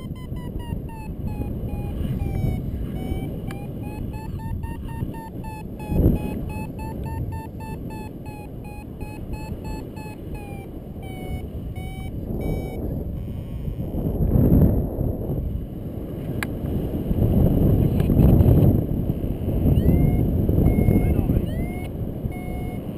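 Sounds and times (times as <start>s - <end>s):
variometer beeping: 0.0s - 14.0s, 19.7s - 22.9s
wind rumbling on microphone: 0.0s - 22.9s.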